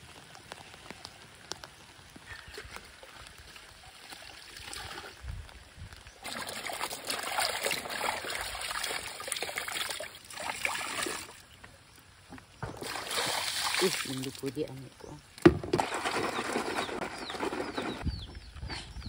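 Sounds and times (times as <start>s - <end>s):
water splashing and sloshing: 0.1s - 18.0s.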